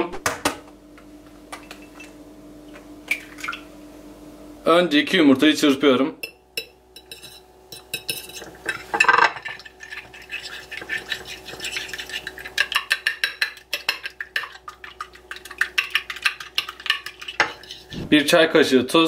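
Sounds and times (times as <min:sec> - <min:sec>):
fork beating eggs on a plate: 0:06.2 - 0:17.9.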